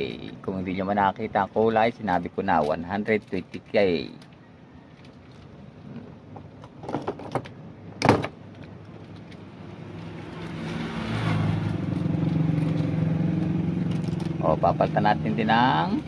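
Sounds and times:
engine humming: 7.4 - 16.0.

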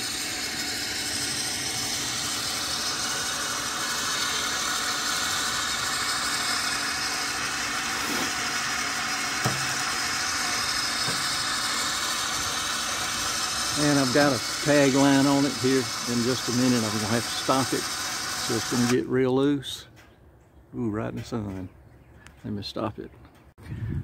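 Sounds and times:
electric winch running: 0.0 - 19.1.

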